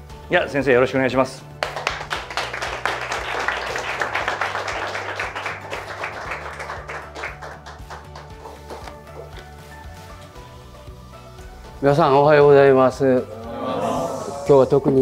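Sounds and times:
small audience applauding: 1.6 - 9.2.

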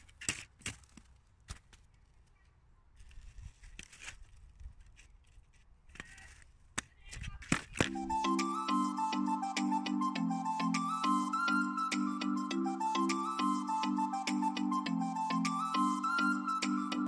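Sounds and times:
ski bindings clicking: 0.0 - 7.9
music: 7.9 - 17.0.

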